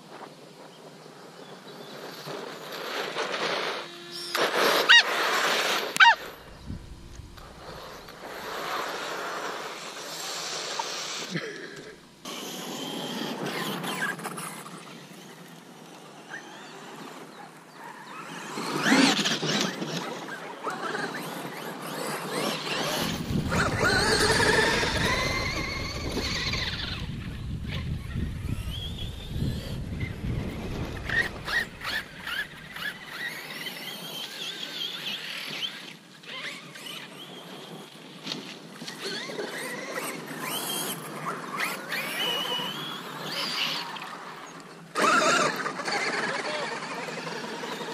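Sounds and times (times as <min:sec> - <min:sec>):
tyres churning sand: 0:00.0 - 0:27.8
electric motor whine: 0:01.8 - 0:37.9.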